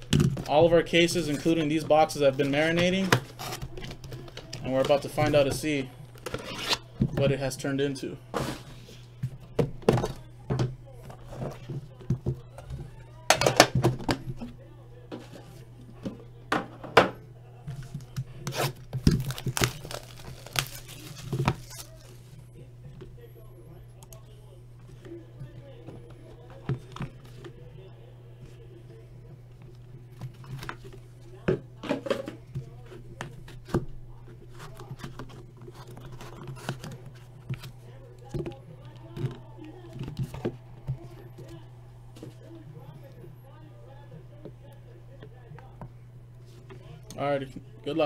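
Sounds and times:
cards rustling: 0:00.0 - 0:12.6, 0:17.7 - 0:22.4, 0:32.3 - 0:43.2
plastic wrapping crinkling and tearing: 0:17.9 - 0:22.4.

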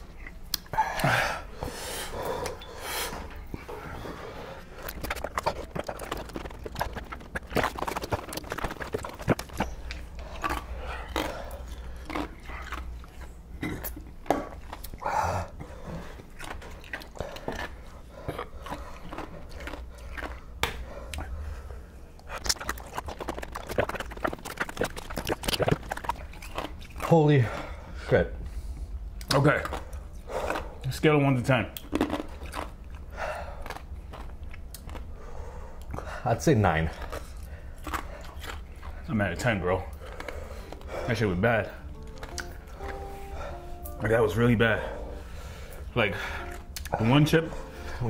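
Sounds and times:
sucking and smacking mouth noises: 0:00.0 - 0:01.1, 0:04.6 - 0:21.4, 0:22.1 - 0:27.2, 0:41.8 - 0:43.9.

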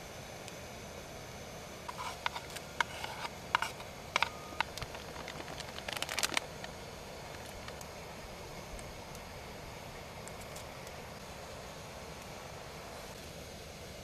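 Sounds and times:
steady hiss: 0:00.0 - 0:14.0.

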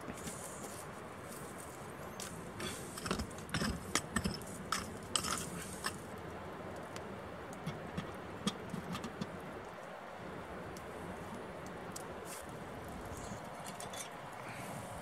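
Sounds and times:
sharp crackles and scrapes: 0:00.0 - 0:06.2, 0:07.6 - 0:09.4, 0:12.0 - 0:14.6.

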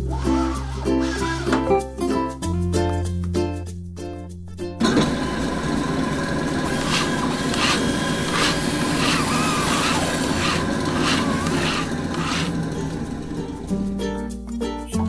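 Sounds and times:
music: 0:00.0 - 0:05.6, 0:09.2 - 0:15.0
small machine running: 0:04.8 - 0:13.9.

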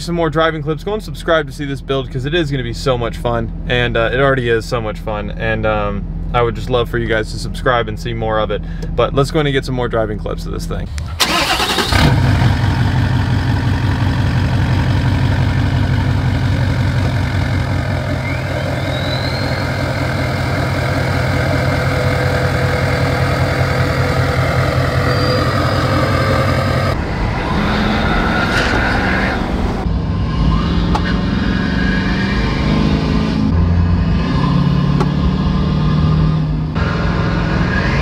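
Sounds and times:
diesel engine idling: 0:10.9 - 0:29.9.

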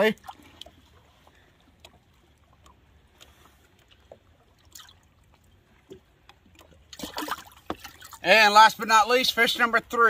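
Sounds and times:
water splashing and dripping: 0:00.0 - 0:08.5.

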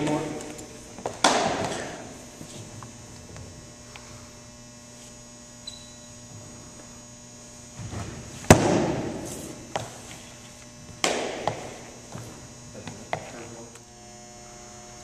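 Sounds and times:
electrical hum: 0:00.0 - 0:15.0
baseball popping into glove: 0:11.0 - 0:11.8.

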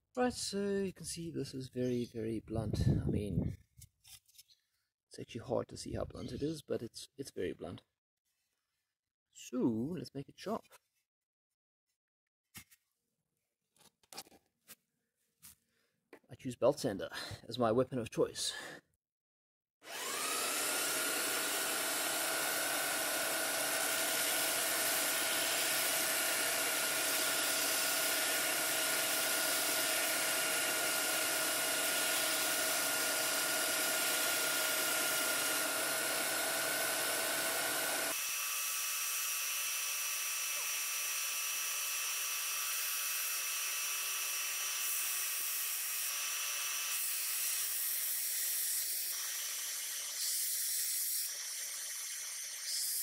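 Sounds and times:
belt sander whining: 0:19.9 - 0:38.2.

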